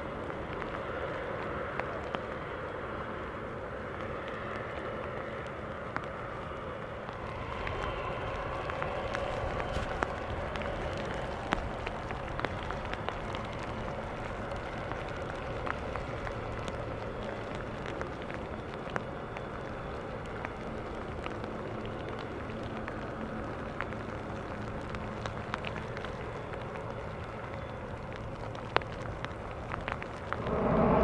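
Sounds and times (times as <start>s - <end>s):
raindrops ticking: 0.0s - 30.4s
faint hum: 0.0s - 31.0s
airport rumble: 30.3s - 31.0s.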